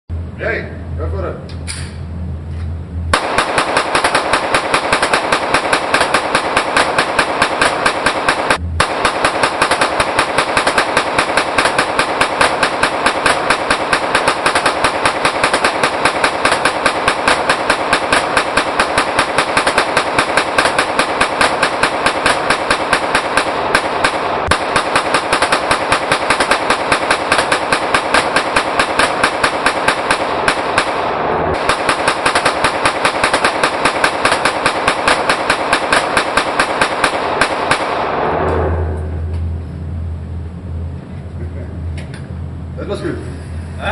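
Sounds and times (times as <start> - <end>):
rapid gunfire: 3.1 - 38.2.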